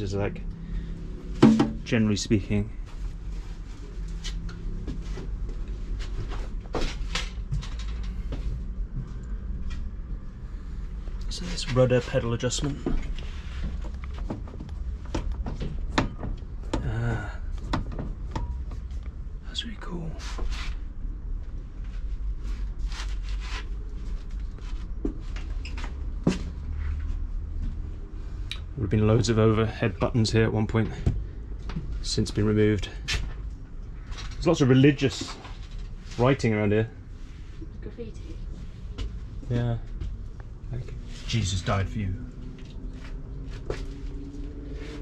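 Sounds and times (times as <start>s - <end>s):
steady low rumble: 0.0s - 45.0s
knocks and clunks of fittings: 1.4s - 1.9s.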